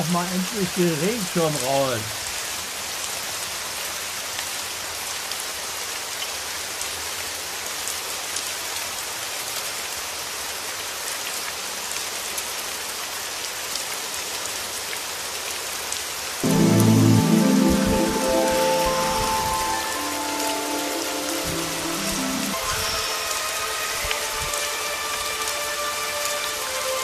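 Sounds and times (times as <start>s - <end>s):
rain drops ticking: 0.0s - 7.0s, 15.9s - 27.0s
rain hiss: 0.0s - 27.0s.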